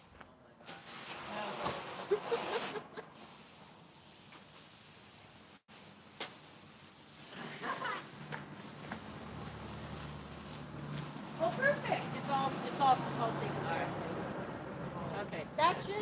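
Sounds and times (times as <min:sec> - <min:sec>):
steady hiss: 0:00.0 - 0:13.7
sharp click: 0:06.2 - 0:06.4.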